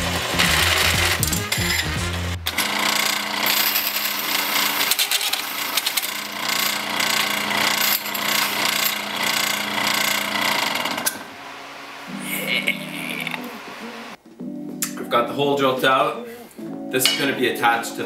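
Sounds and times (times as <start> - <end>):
hole saw grinding through steel: 0.0 - 11.1
drill press motor hum: 0.0 - 11.3.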